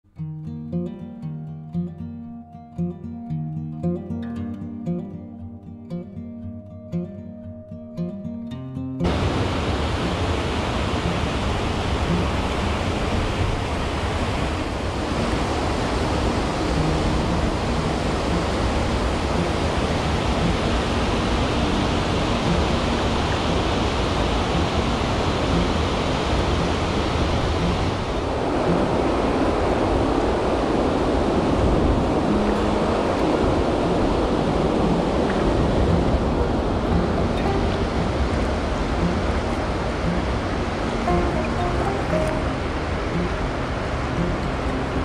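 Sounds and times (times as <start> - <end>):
water rushing over spillway: 9.0 - 45.0.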